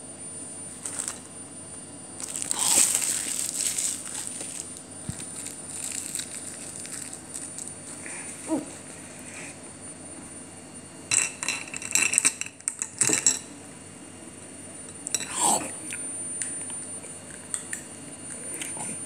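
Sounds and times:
plastic wrap crinkling: 0.7 - 1.3, 2.2 - 8.4.

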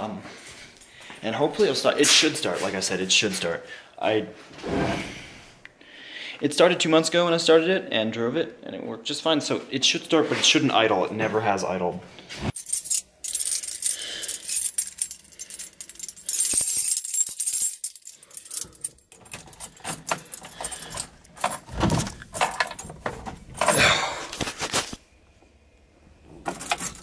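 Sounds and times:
car keys jangling: 12.6 - 23.8, 26.5 - 27.0
rattles and knocks from seat movement: 19.2 - 24.6.

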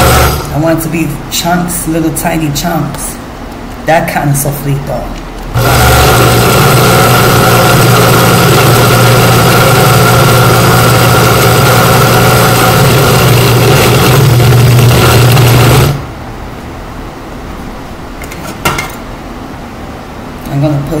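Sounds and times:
blender motor running: 0.0 - 0.6, 5.6 - 16.0.

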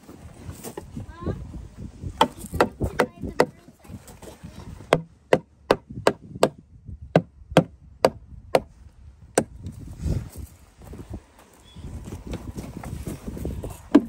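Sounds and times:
rubber mallet knocking wood: 2.2 - 3.6, 4.9 - 6.6, 7.2 - 8.7.

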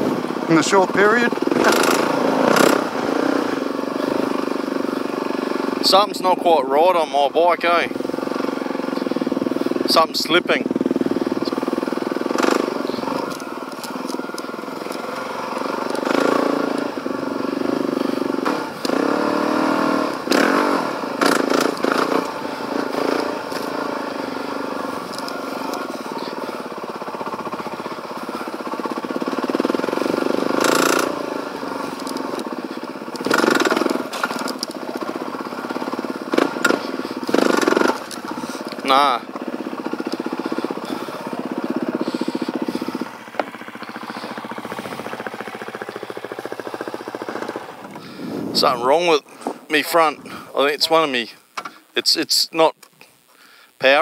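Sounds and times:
motorcycle engine running: 0.0 - 52.0
man talking: 0.5 - 1.4, 5.8 - 8.0, 9.9 - 10.7, 38.8 - 39.3, 48.5 - 51.4, 52.0 - 52.8, 53.8 - 54.0.

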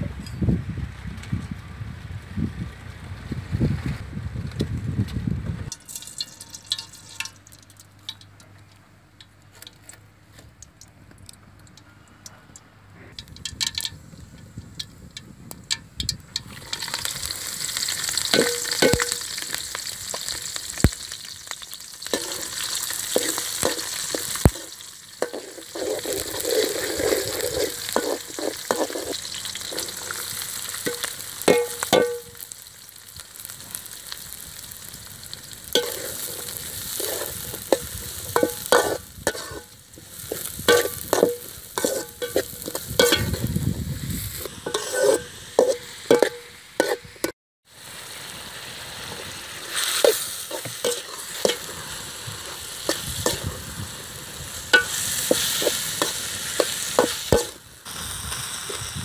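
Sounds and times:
metal spoon scraping a pan: 5.7 - 7.5, 16.3 - 19.5, 22.0 - 32.5, 35.6 - 43.6, 44.2 - 47.3, 49.7 - 53.6, 54.7 - 57.6
loud sizzling in hot oil: 5.7 - 8.3, 13.2 - 59.0
seeds popping in oil: 5.7 - 8.6, 13.1 - 47.0, 49.7 - 59.0.

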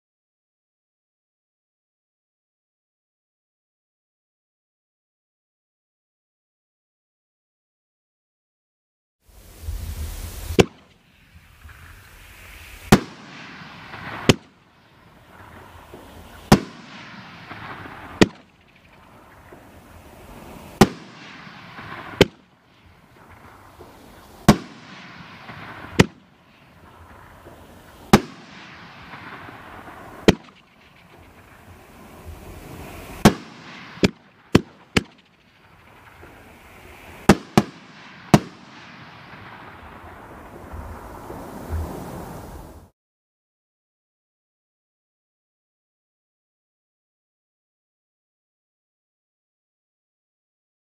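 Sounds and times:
firework hissing rush: 9.3 - 42.9
firework bangs: 9.4 - 42.9.

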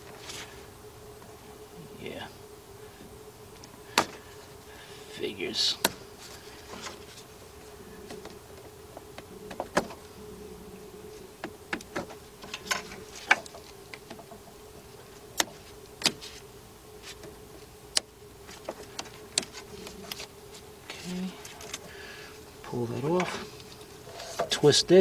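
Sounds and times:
faint steady hum: 0.0 - 25.0
gloved hands handling cable: 21.3 - 21.9.

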